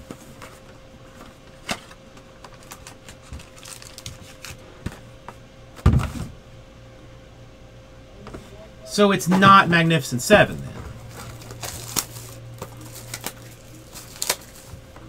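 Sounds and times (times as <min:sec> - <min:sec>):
card pack rustling and clicks: 0:00.4 - 0:05.0, 0:11.0 - 0:14.9.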